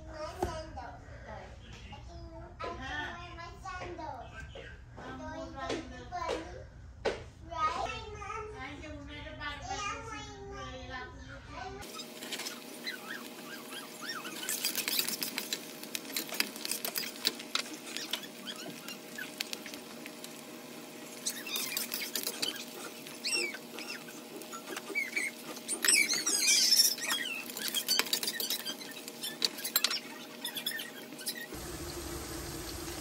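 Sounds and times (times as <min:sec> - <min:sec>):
vegetables sizzling in hot oil: 0:11.8 - 0:25.4.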